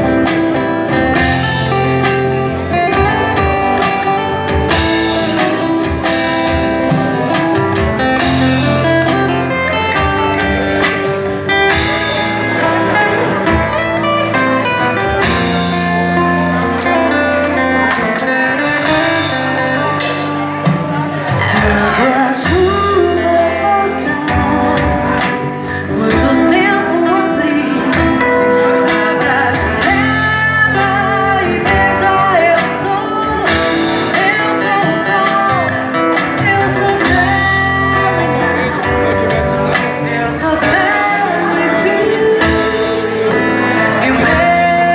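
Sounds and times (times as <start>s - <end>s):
drums and cymbals: 0.0s - 26.7s, 31.7s - 41.5s
acoustic guitars playing: 0.0s - 44.9s
woman singing into microphone: 21.0s - 39.0s, 39.8s - 44.9s.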